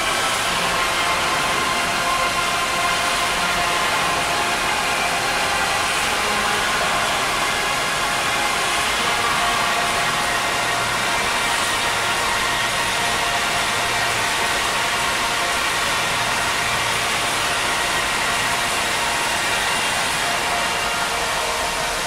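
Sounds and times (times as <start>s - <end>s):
fountain water jets rushing: 0.0s - 22.0s.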